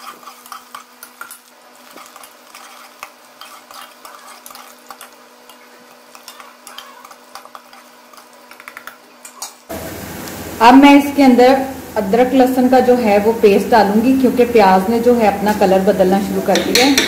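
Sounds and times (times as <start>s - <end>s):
metal spoon scraping pot: 0.0s - 8.3s
onions sizzling in oil: 9.7s - 15.8s.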